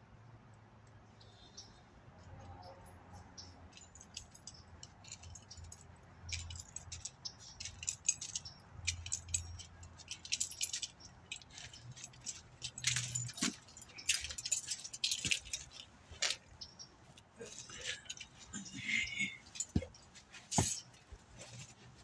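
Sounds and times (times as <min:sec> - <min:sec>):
small hard objects clinking: 0:03.8 - 0:16.4.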